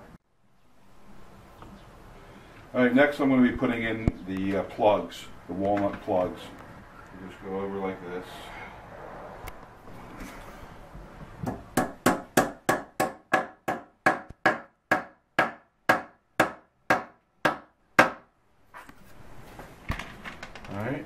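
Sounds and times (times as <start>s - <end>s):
hammer tapping wood: 11.4s - 18.2s.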